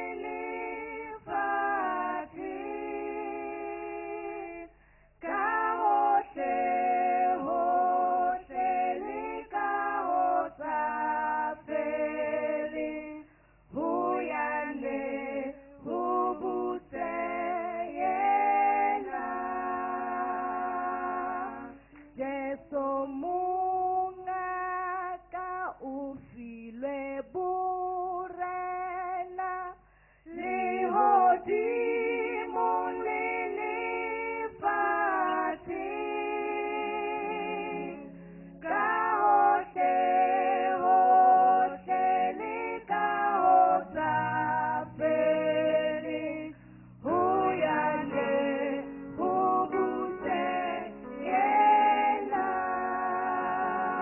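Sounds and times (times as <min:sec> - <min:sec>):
women singing gospel in harmony: 0:00.0 - 0:54.0.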